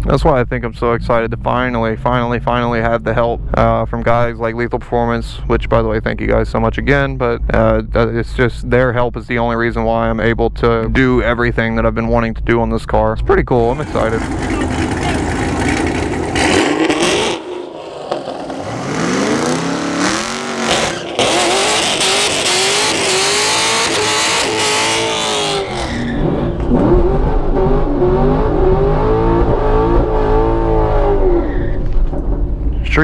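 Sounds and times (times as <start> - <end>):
car engine revving: 13.7 - 33.0
tires spinning and hissing: 13.8 - 30.6.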